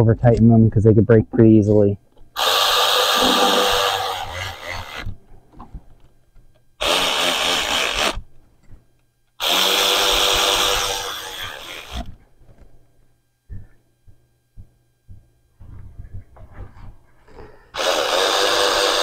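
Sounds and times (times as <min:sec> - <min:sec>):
power ratchet running: 0:02.4 - 0:05.1, 0:06.8 - 0:08.2, 0:09.4 - 0:12.1, 0:17.8 - 0:19.0.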